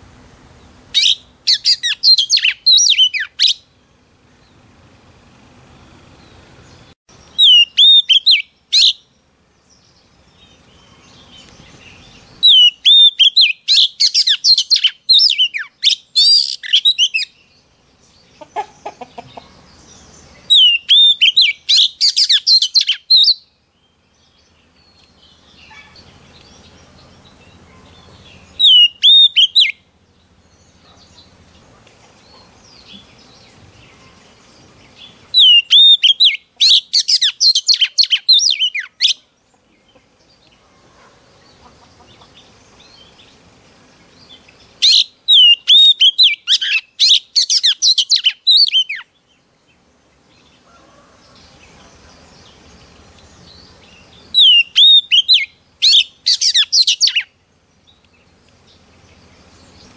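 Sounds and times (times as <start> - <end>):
bird singing whistled notes: 1.0 - 3.9, 6.7 - 17.6, 19.8 - 29.8, 35.0 - 39.2, 44.2 - 49.2, 53.2 - 58.1.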